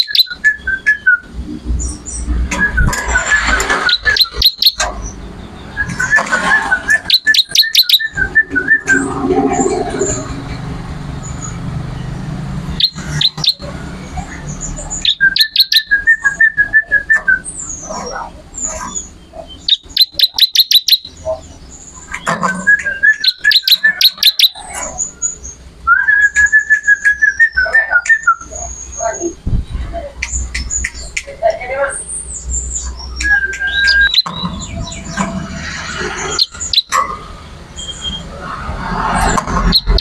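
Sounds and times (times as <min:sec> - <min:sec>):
bird singing rattling trills: 0:00.0 - 0:10.6, 0:11.2 - 0:29.4, 0:30.3 - 0:40.0
thin high bird whistles: 0:32.8 - 0:35.0.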